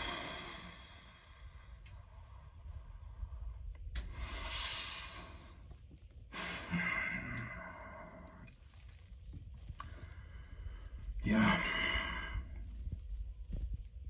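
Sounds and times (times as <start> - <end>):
man breathing deeply: 0.0 - 8.4, 9.8 - 12.8.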